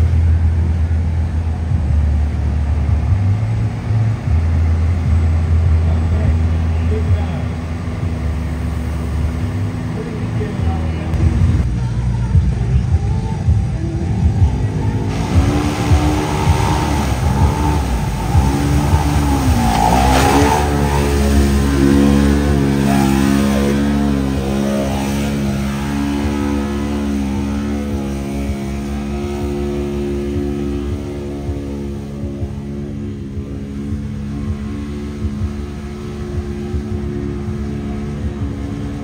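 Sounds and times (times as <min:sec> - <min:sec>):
utility vehicle engine revving: 0:00.0 - 0:39.0
mud and water spraying: 0:14.9 - 0:32.8.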